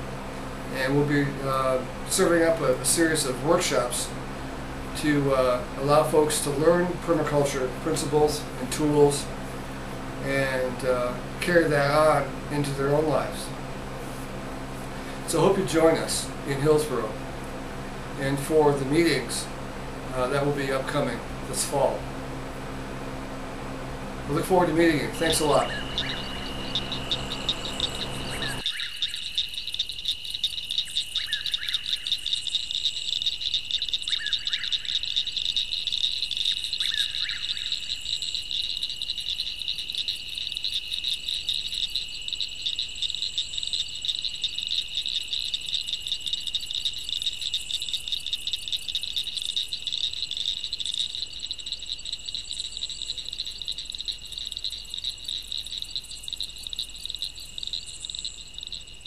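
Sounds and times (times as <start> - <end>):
high-pitched whine: 0.0 - 59.0
animal trills chorus: 25.2 - 59.0.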